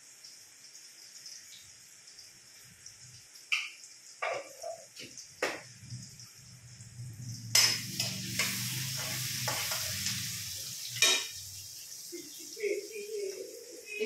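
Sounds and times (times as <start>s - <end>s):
food sizzling in hot oil: 0.0s - 14.0s
metal spatula knocking pan: 3.6s - 4.7s, 7.5s - 9.8s, 11.0s - 11.4s.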